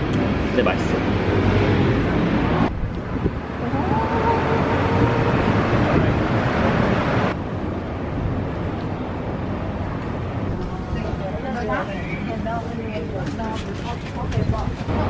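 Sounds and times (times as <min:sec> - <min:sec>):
street traffic: 0:00.0 - 0:15.0
wind on microphone: 0:02.4 - 0:07.4, 0:13.5 - 0:15.0
busy cafe noise: 0:10.5 - 0:15.0.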